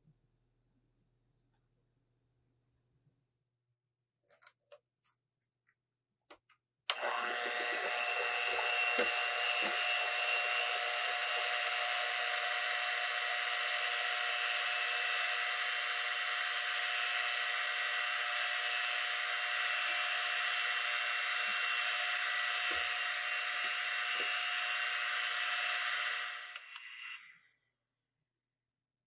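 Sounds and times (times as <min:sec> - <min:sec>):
electric hand mixer running: 0:06.9 - 0:27.2.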